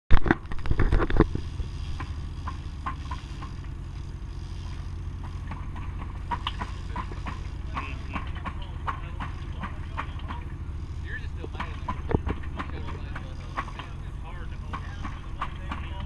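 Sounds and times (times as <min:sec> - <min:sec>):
boat engine humming: 0:00.2 - 0:16.0
sharp knocks: 0:11.5 - 0:14.0.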